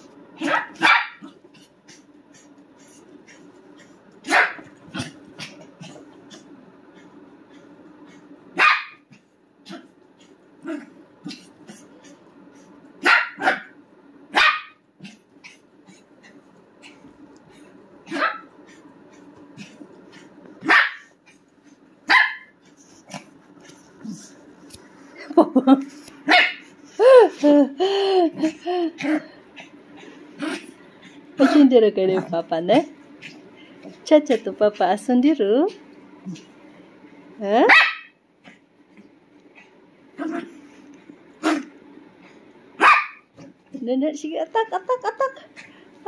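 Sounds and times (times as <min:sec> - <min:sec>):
small dog barking: 0:00.4 - 0:01.4, 0:04.2 - 0:04.7, 0:08.6 - 0:09.1, 0:13.0 - 0:15.6, 0:18.0 - 0:18.5, 0:20.6 - 0:21.1, 0:22.1 - 0:22.5, 0:26.2 - 0:26.7, 0:37.7 - 0:38.2, 0:42.8 - 0:43.3
dog yipping: 0:42.8 - 0:43.2.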